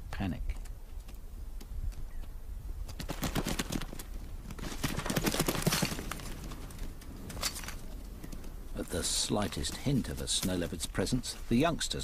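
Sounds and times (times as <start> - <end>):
hooves clattering on rock: 0.4 - 11.7.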